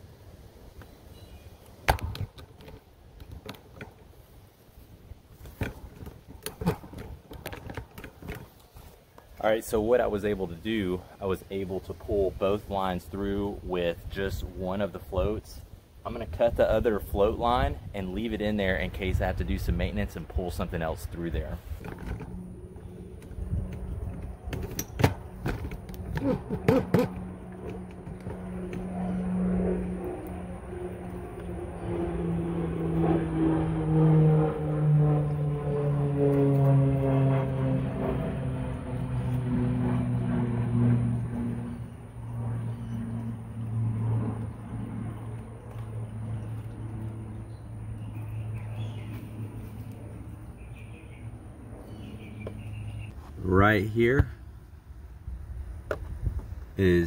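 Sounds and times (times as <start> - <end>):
vehicle engine humming: 19.6 - 53.6.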